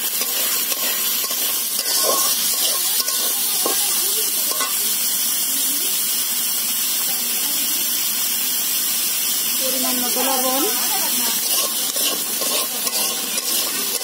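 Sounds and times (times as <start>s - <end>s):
metal spatula scraping pan: 0.0s - 3.8s, 4.5s - 4.8s, 10.2s - 14.0s
onions sizzling in hot oil: 0.0s - 14.0s.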